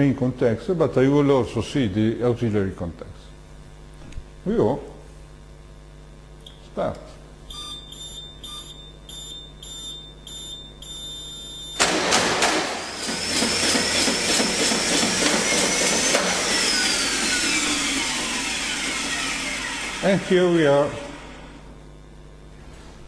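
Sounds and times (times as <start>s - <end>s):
short warning beeps: 7.5s - 11.8s
motor whine: 7.5s - 22.4s
circuit breaker mechanical clunk: 11.8s - 13.2s.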